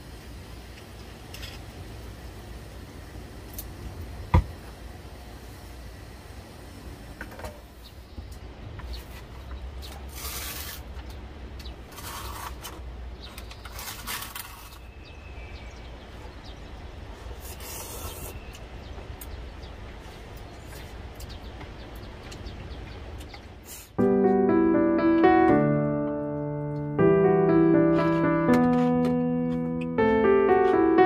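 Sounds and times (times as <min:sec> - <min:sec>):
rustling of food containers: 0:08.8 - 0:15.8.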